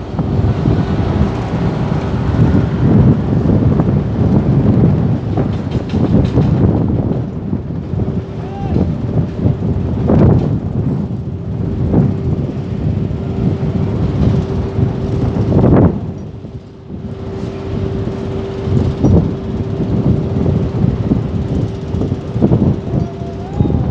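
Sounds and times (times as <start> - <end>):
crane diesel engines running: 0.0 - 23.9
wind buffeting microphone: 0.0 - 23.9.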